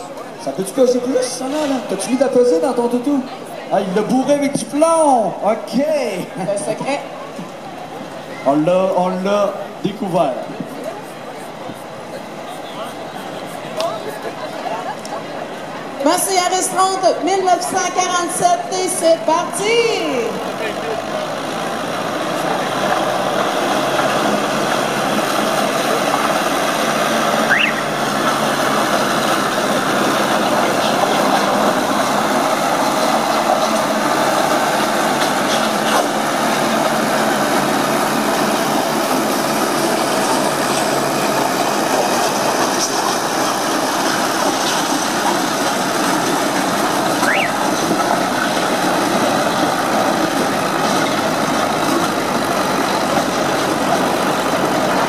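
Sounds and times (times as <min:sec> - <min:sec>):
tractor engine under load: 0:00.0 - 0:55.0
rising squeal: 0:27.3 - 0:28.0, 0:47.2 - 0:47.8.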